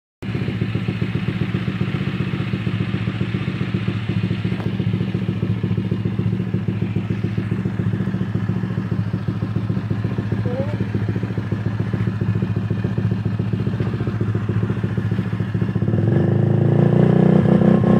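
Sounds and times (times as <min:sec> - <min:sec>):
scooter engine idling: 0:00.2 - 0:16.2.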